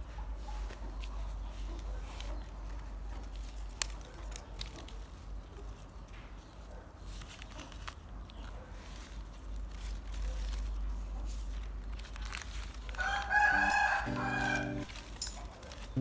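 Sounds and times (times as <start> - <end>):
plastic bag and leaves rustling: 0.0 - 16.0
crackling: 7.1 - 16.0.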